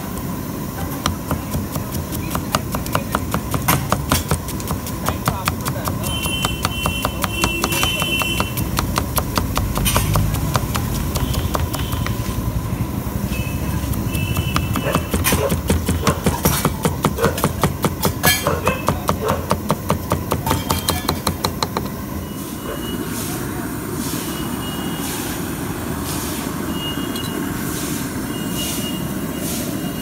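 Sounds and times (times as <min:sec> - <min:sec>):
knife chopping on wooden block: 0:01.0 - 0:12.2, 0:13.8 - 0:21.9.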